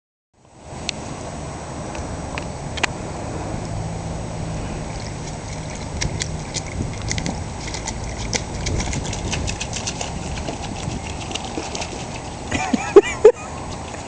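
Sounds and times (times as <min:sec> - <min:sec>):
dog splashing water: 0:04.2 - 0:14.0.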